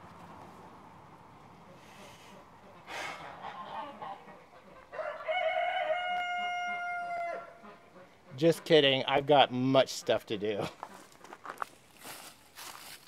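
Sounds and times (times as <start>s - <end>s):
rooster crowing: 4.9s - 7.6s.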